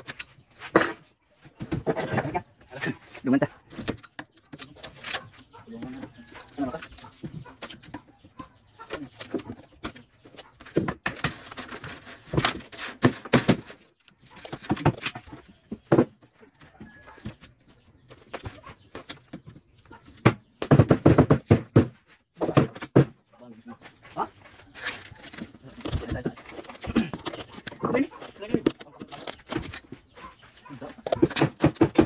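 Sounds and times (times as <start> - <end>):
frame pieces knocking and clattering: 8.8 - 23.2, 24.8 - 32.0.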